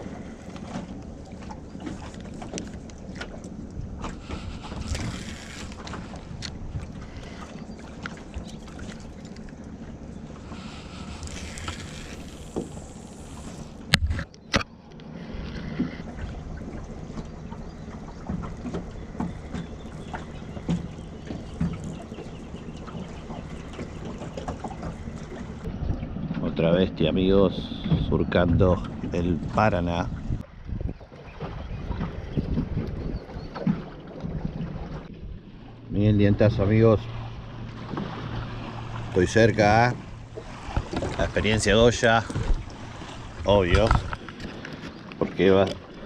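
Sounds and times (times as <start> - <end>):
water lapping against hull: 0.0 - 46.0
wind on microphone: 25.2 - 26.5, 27.2 - 35.5, 39.0 - 44.6.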